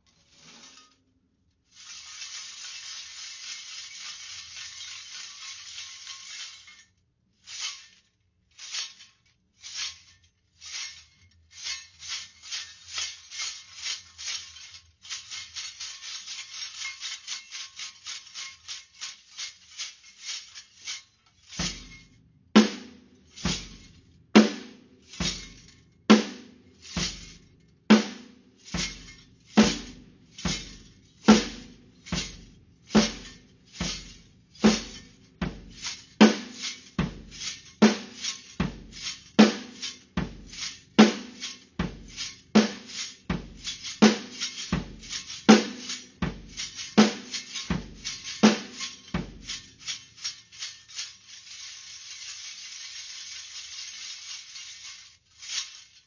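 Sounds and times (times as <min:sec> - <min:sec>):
metal junk rattle jangling: 0:01.8 - 0:22.1, 0:28.6 - 0:56.0
drum kit beat: 0:19.2 - 0:51.2.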